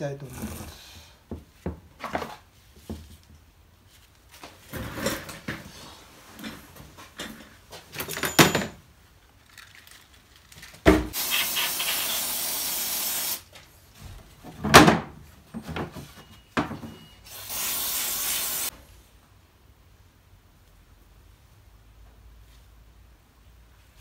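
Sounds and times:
spraying hiss: 11.2 - 13.5, 17.3 - 18.7.

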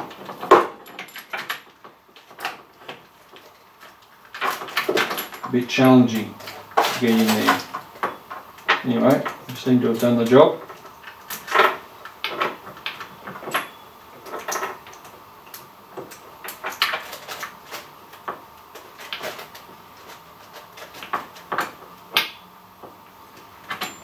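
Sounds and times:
chainsaw parts clicking and scraping: 0.4 - 12.6.

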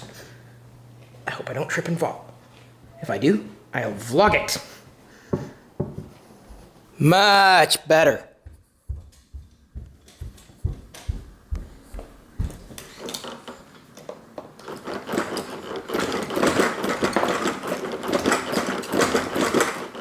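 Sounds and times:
footsteps on wooden floor: 4.2 - 4.6, 8.4 - 13.1
plastic toys clicking and rattling: 12.8 - 20.0.

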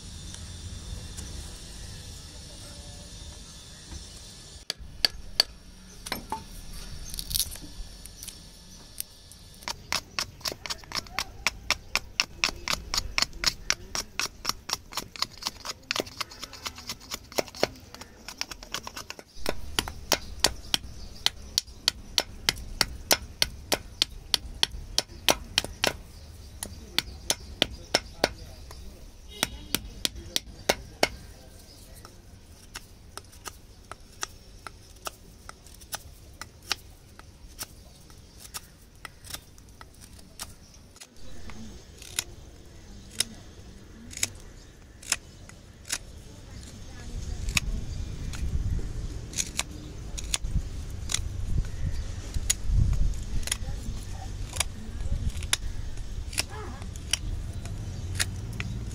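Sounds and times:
knife chopping wood: 9.6 - 43.5, 49.3 - 51.2.

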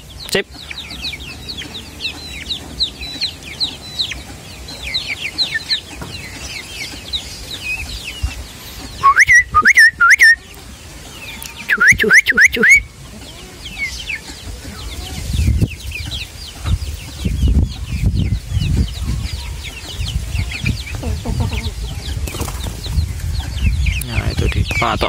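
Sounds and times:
chickens cheeping and clucking: 0.0 - 25.0
short whistle: 9.0 - 10.4, 11.7 - 12.8
wings flapping: 22.2 - 23.0.

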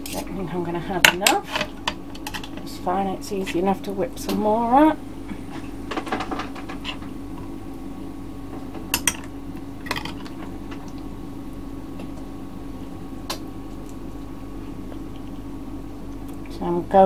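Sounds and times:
steady low hum: 0.0 - 17.0
utensils clinking against a dish: 1.1 - 2.7.

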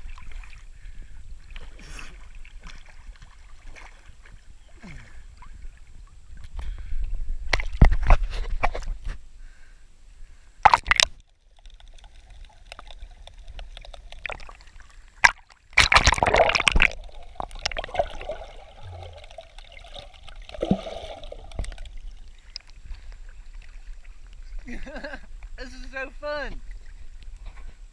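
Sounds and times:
creek water splashing: 0.0 - 6.5, 10.6 - 26.0.

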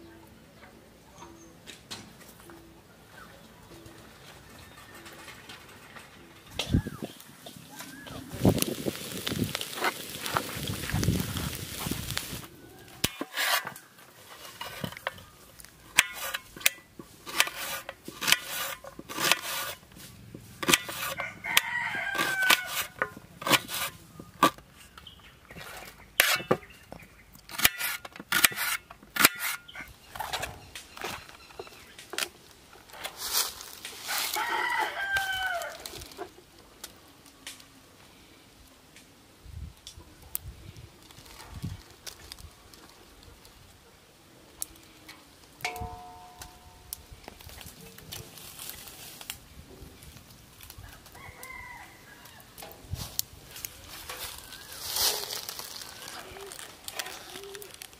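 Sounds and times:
rooster crowing: 21.0 - 23.0, 34.1 - 35.9, 50.8 - 52.5.

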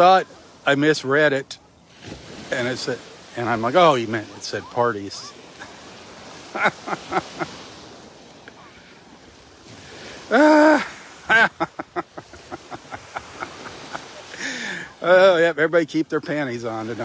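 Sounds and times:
soft surf: 0.0 - 17.0
man laughing: 6.5 - 7.6, 10.3 - 15.4.

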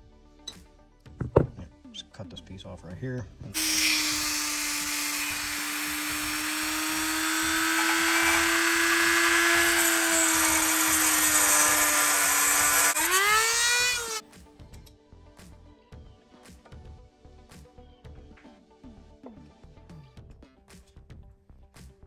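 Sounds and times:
cut-off wheel grinding metal: 3.6 - 14.2
rotary tool motor whine: 3.6 - 14.2.

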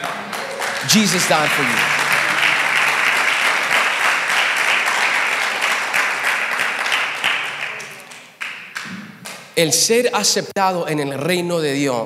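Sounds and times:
congregation applauding: 0.0 - 9.6.

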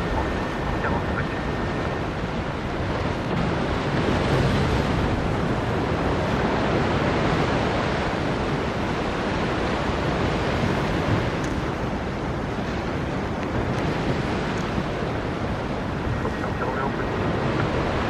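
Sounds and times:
jet engines roaring: 0.0 - 3.7, 14.9 - 18.0.

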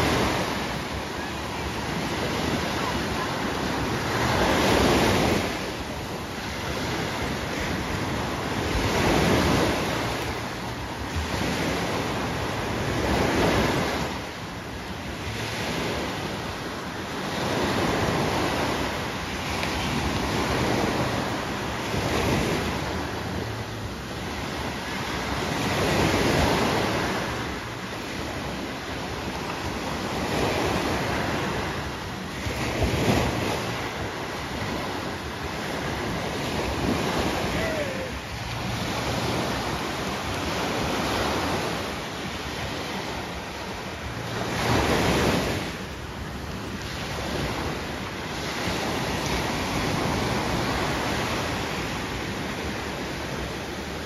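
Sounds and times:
waves breaking on shore: 0.0 - 54.0.

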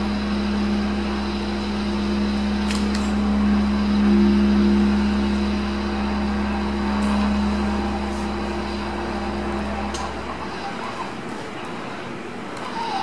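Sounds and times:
steady low drone: 0.0 - 11.3.

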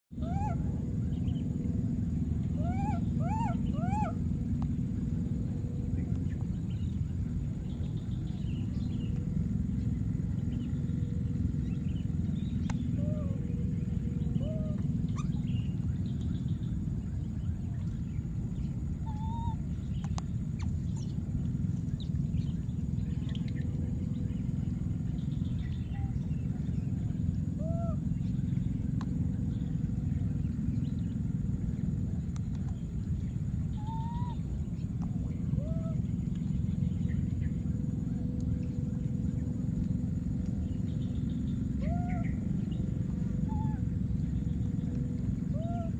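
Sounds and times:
low outdoor rumble: 0.1 - 45.9
chirping animal calls: 0.2 - 1.4, 2.5 - 4.4, 12.3 - 15.9, 19.0 - 19.7, 33.6 - 34.6.

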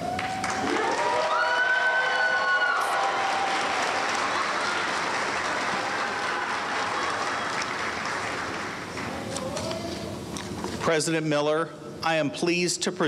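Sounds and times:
audience applauding: 0.0 - 9.3.

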